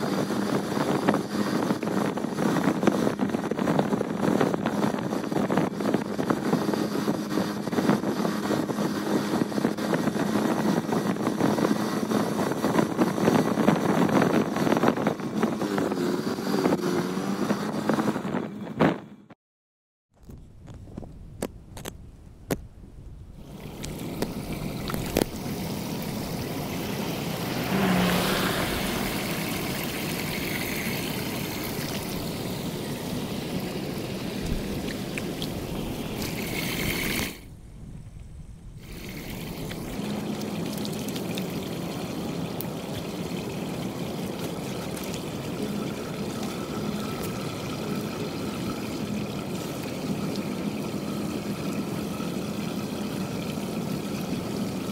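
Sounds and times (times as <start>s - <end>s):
water pouring into storm drain: 23.4s - 37.5s, 38.8s - 54.9s.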